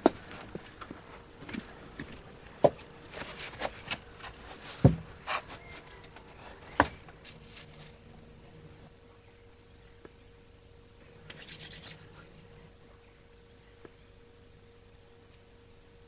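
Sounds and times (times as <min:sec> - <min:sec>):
rustling: 0:03.1 - 0:08.2
wooden knocks and thumps: 0:04.8 - 0:05.1.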